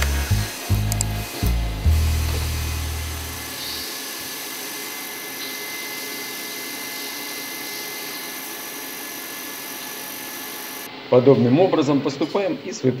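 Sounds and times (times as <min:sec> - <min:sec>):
low hum: 0:00.0 - 0:04.1
boring machine cutting metal: 0:00.0 - 0:10.9.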